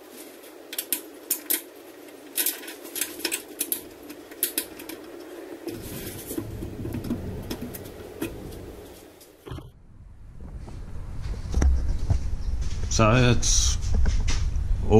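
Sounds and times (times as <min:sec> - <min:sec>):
metal bracket clicks: 0:02.3 - 0:05.8
low rumble: 0:05.7 - 0:14.9.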